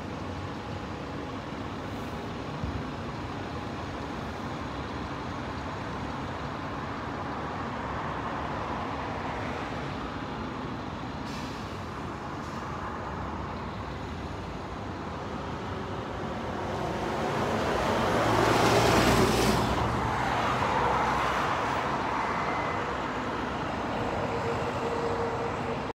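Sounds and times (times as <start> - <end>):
city road traffic: 0.0 - 26.0
heavy vehicle passing: 15.0 - 25.9.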